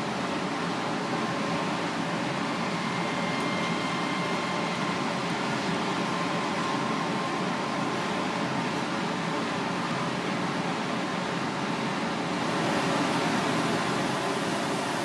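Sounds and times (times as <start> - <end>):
faint high whines: 2.3 - 5.2
room machinery hiss: 12.3 - 15.0.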